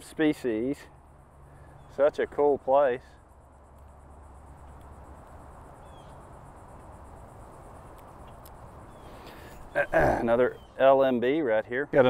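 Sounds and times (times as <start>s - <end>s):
insects trilling: 0.0s - 12.0s
low background hum: 0.0s - 12.0s.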